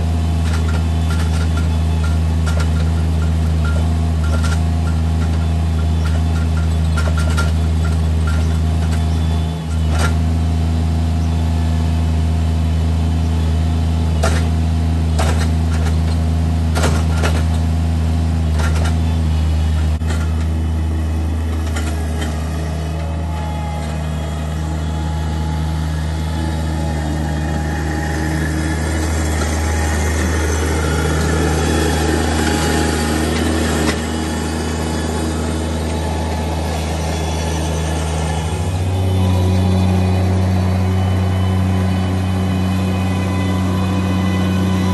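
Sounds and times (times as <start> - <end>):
diesel engine running: 0.0 - 44.9.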